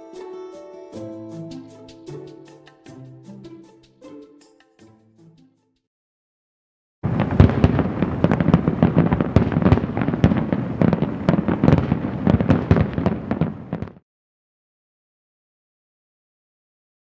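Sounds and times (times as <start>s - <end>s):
fireworks bangs and crackling: 7.0s - 14.0s.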